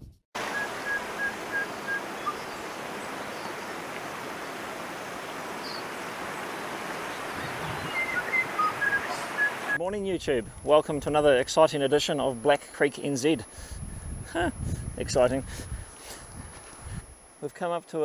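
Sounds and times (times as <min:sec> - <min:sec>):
bird calling: 0:00.4 - 0:09.8
stream running over rocks: 0:00.4 - 0:09.8.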